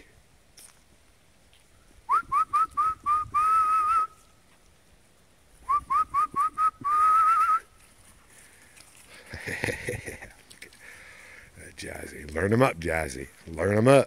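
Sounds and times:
person whistling: 2.1s - 4.2s, 5.6s - 7.7s.

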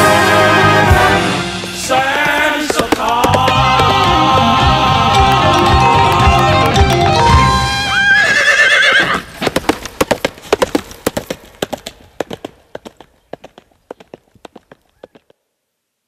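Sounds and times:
music: 0.0s - 8.0s
horse hoofbeats clip-clopping: 1.9s - 15.4s
horse whinnying: 2.8s - 9.3s.

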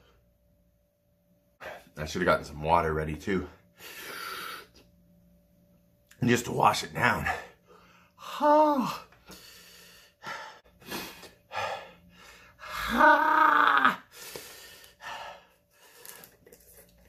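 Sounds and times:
man breathing hard: 3.7s - 4.8s, 7.4s - 12.9s, 14.0s - 16.4s
man groaning: 8.2s - 9.1s, 12.6s - 14.1s.

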